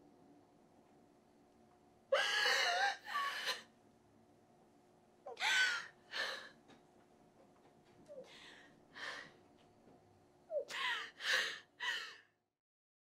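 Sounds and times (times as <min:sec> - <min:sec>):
woman sobbing: 0:02.1 - 0:03.7, 0:05.3 - 0:06.5, 0:10.5 - 0:12.3.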